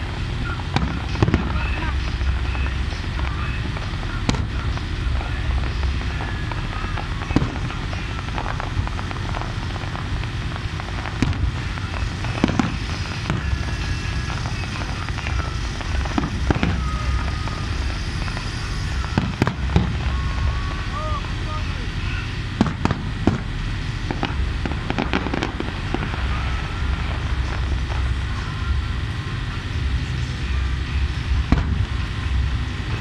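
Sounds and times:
fireworks bursting with bangs: 0.0 - 33.0
low rumble: 0.0 - 33.0.

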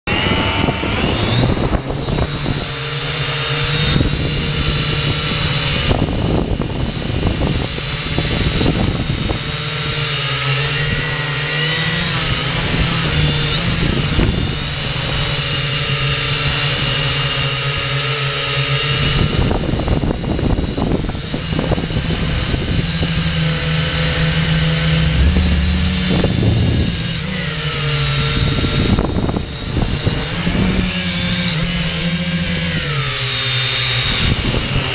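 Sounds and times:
drone motors whining: 0.1 - 34.9
rushing noise: 21.6 - 29.5.

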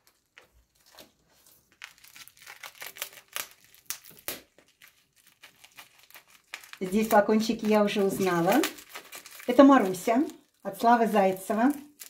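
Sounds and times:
plastic wrapping rustling: 0.0 - 12.0
scissors cutting plastic: 1.7 - 10.3.

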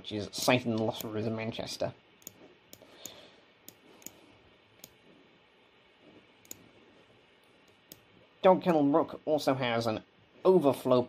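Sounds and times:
computer mouse clicks: 2.2 - 4.2, 4.8 - 5.0, 6.4 - 6.6.

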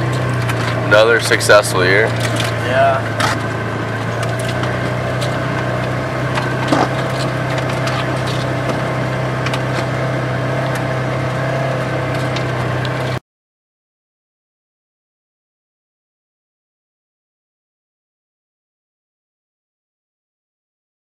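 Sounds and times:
vehicle engine running: 0.0 - 13.2.

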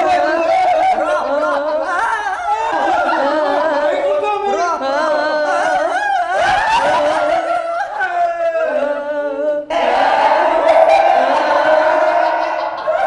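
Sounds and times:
person singing: 0.0 - 13.0.

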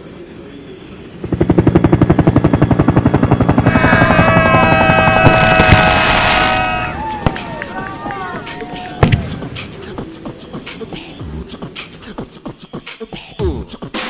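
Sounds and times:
high whining tones: 1.0 - 11.6
helicopter rotor chop: 1.1 - 8.5.

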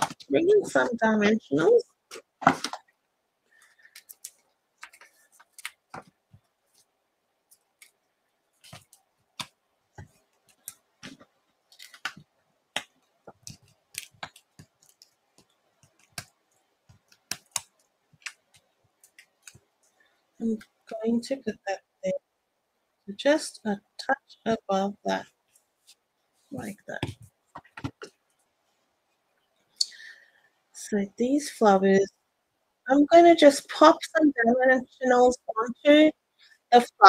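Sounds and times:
paper rustling: 3.6 - 6.9, 7.5 - 12.3
small clicks and taps: 3.8 - 6.5, 8.6 - 20.0.

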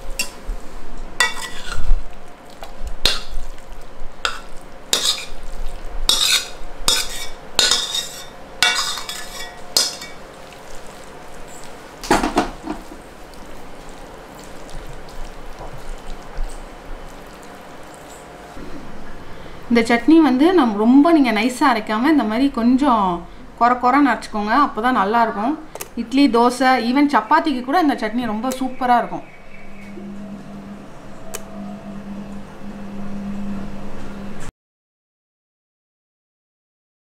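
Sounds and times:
metal spatula scraping metal pan: 1.2 - 1.9, 4.3 - 5.4, 6.1 - 10.2.

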